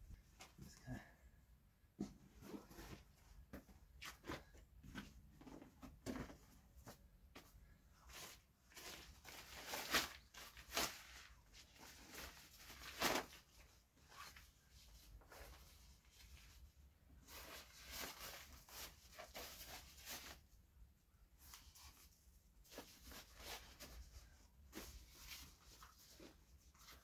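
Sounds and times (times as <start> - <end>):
plastic crinkling and rustling: 8.2 - 14.5.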